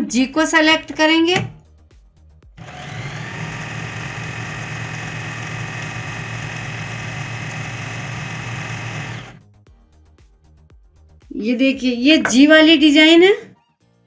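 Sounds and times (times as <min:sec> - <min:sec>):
sewing machine running: 0:02.6 - 0:09.4.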